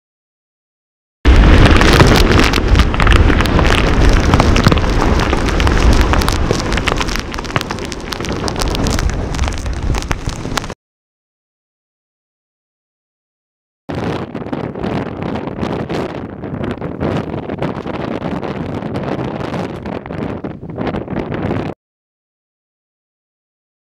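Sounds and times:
heavy surf breaking: 1.3s - 10.8s
storm wind buffeting microphone: 1.3s - 10.8s, 13.9s - 21.8s.

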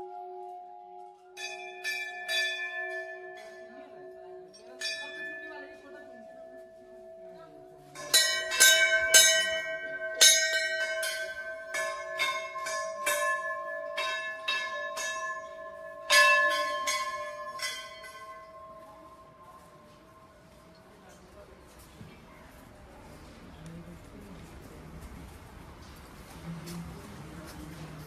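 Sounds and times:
temple bell ringing: 0.0s - 21.3s.

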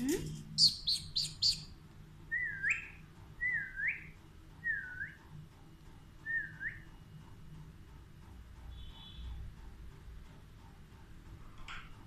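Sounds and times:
parakeet whistling: 0.6s - 1.7s, 2.4s - 4.1s
shrill bird chirps: 0.6s - 5.2s.

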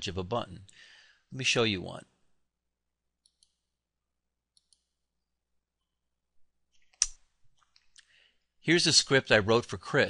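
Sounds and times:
computer mouse clicks: 3.2s - 3.7s, 4.5s - 5.0s.

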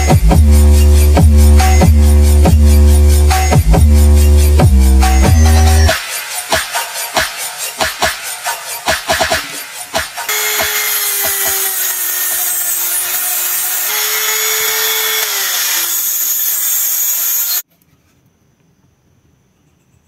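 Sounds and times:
rotary grinder grinding plastic: 10.3s - 17.6s.

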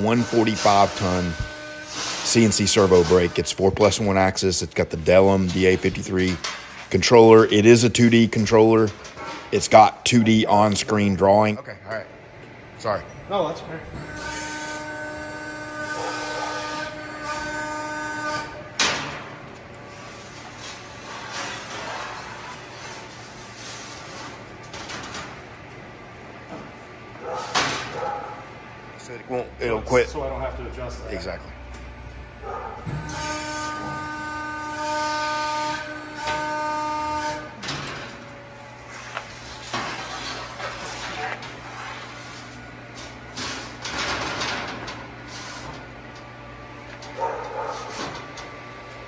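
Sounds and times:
press brake whining: 0.0s - 4.3s, 12.8s - 19.8s, 31.6s - 39.3s.

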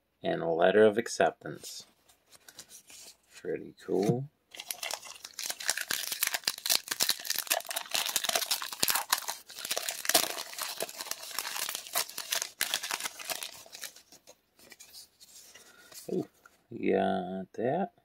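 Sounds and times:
foil wrapper crinkling and tearing: 4.5s - 16.1s.

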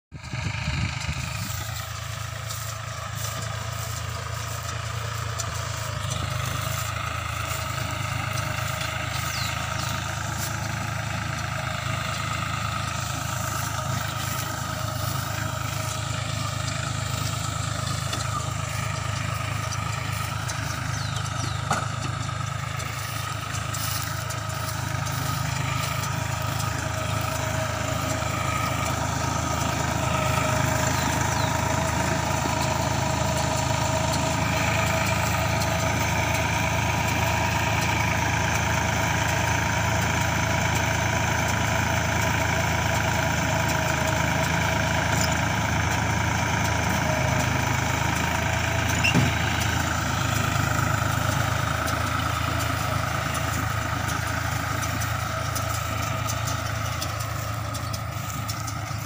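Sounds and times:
tractor diesel engine running: 0.0s - 59.0s
baler machinery running: 0.2s - 59.0s.

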